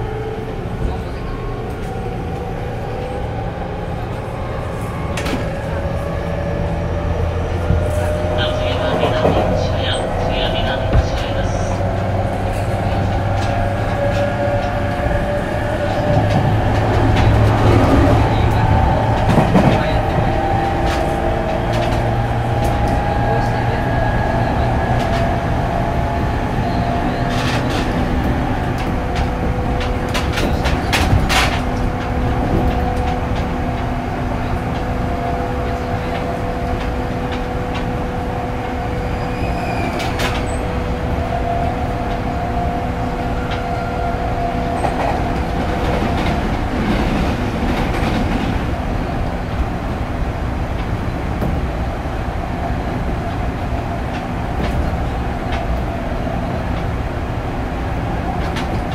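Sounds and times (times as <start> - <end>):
wheel-on-rail rumble: 0.0 - 58.9
wheels clicking over rail joints: 27.0 - 34.0.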